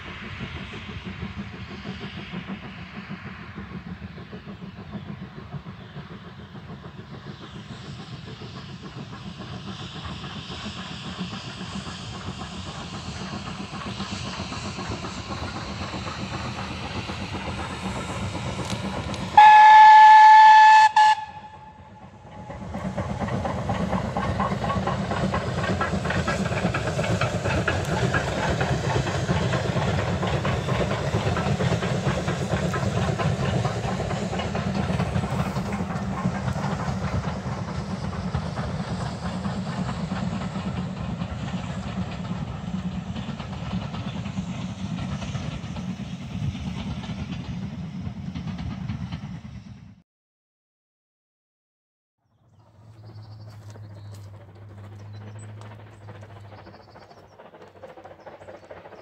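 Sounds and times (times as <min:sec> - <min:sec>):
steam locomotive exhaust and running: 0:00.0 - 0:50.0, 0:52.6 - 0:59.0
train wheel noise: 0:00.0 - 0:50.0, 0:52.6 - 0:59.0
steam whistle blast: 0:19.4 - 0:22.0.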